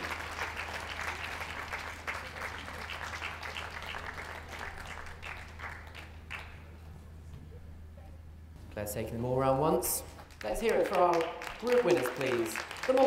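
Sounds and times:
audience applauding: 0.0s - 6.7s, 10.3s - 13.0s.

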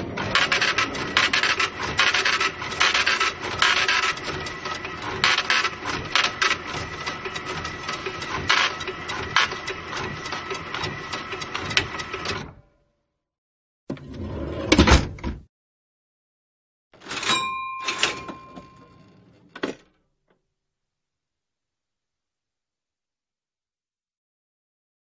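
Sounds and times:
cash register clicking and rattling: 0.0s - 12.6s, 17.0s - 20.0s.

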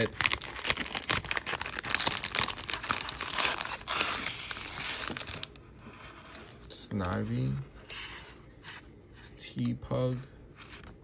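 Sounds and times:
plastic packaging crackling and tearing: 0.0s - 5.8s.

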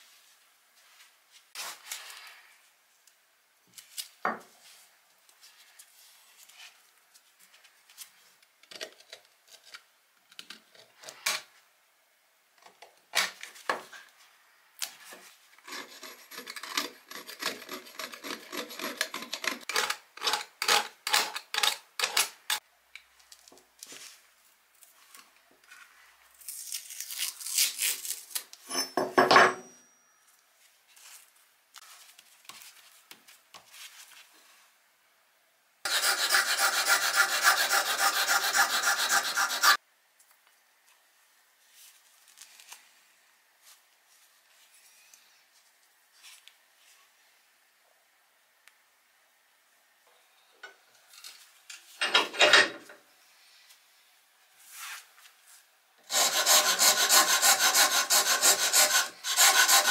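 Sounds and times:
repeated scraping strokes: 35.9s - 39.8s, 56.1s - 59.9s.

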